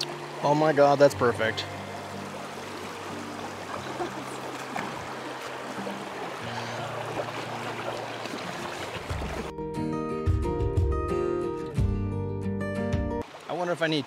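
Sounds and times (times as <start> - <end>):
low background music notes: 0.0 - 3.8
creek water flowing: 0.0 - 9.6, 13.2 - 14.0.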